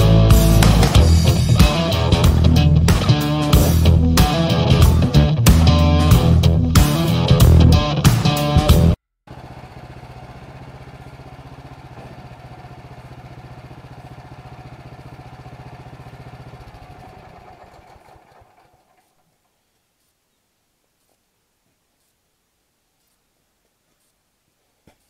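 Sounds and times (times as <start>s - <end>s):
gasoline engine running: 0.0s - 7.9s, 8.5s - 19.2s.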